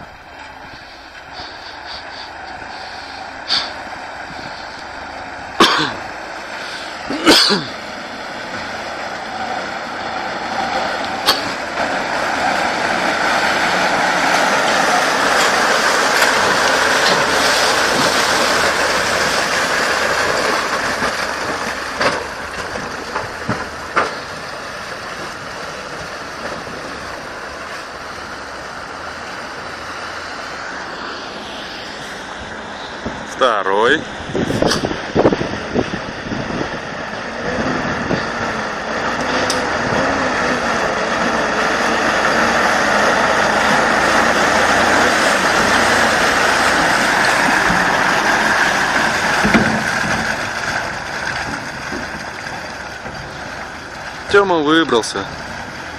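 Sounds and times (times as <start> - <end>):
truck diesel engine driving past: 0.0 - 55.9
tyres in mud: 0.0 - 55.9.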